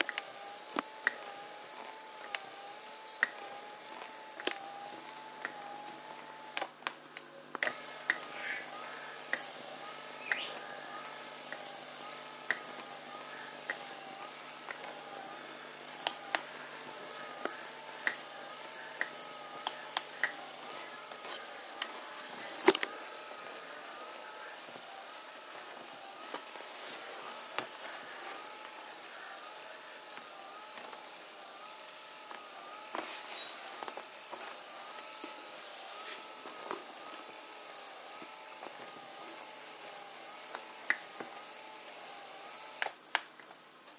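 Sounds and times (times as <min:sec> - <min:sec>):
massager motor whine: 0:00.0 - 0:43.9
sharp clicks: 0:03.2 - 0:03.5, 0:10.3 - 0:10.6, 0:16.0 - 0:18.3.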